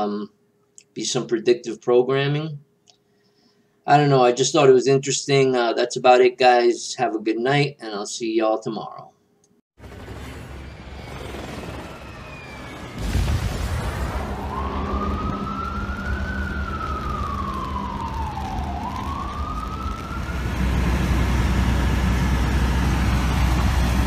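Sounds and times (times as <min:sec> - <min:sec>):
emergency siren wailing: 0:09.8 - 0:24.0
low rumble: 0:11.8 - 0:24.0.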